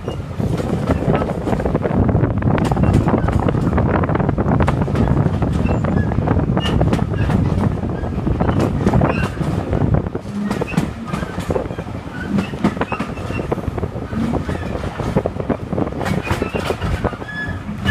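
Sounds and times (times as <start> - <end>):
train rumble on track: 0.0 - 17.9
wheel clacks and knocks: 2.5 - 17.9
short squeaks: 16.2 - 17.9.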